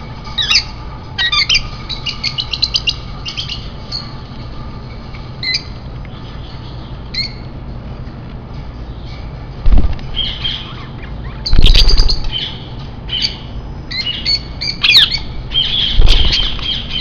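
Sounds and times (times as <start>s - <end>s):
parrots squawking and chirping: 0.2s - 4.3s, 5.0s - 5.8s, 6.6s - 7.5s, 10.1s - 17.0s.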